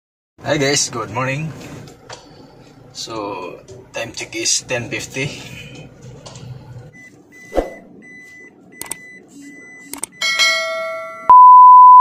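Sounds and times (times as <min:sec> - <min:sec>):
loud steady beep tone: 0:06.9 - 0:10.3, 0:11.2 - 0:12.0
short high beeps: 0:11.3 - 0:12.0.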